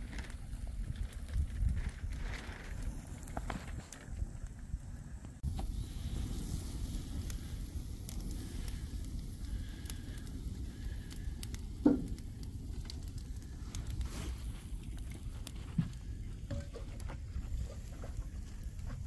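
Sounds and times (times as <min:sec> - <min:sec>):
fire crackling: 0:00.0 - 0:19.0
fire pops: 0:00.0 - 0:19.0
low rush of flame: 0:00.0 - 0:19.0.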